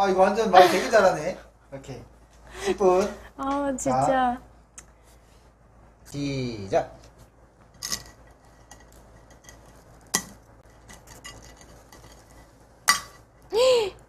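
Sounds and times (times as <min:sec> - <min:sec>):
scraping and tapping sugar candy: 0:07.7 - 0:13.3.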